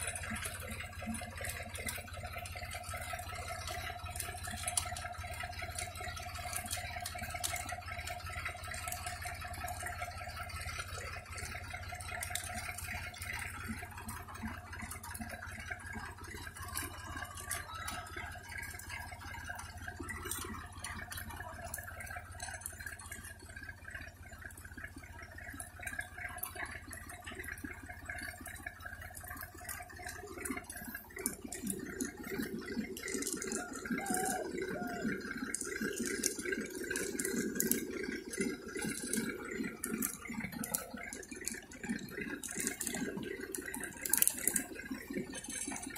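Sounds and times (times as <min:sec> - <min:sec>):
rattling clicks: 0:00.0 - 0:45.9
seed drill humming: 0:24.3 - 0:45.9.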